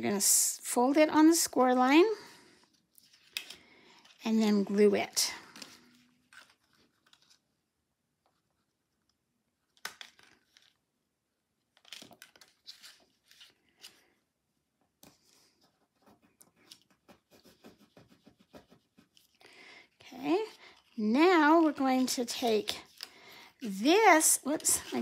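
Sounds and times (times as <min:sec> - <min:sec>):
cardstock rustling and scraping: 0:11.8 - 0:14.0, 0:20.0 - 0:25.0.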